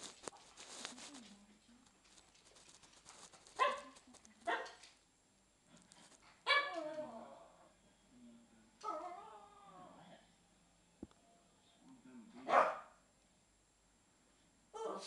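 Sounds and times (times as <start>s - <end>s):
small dog yapping: 6.4s - 6.9s, 14.8s - 15.0s.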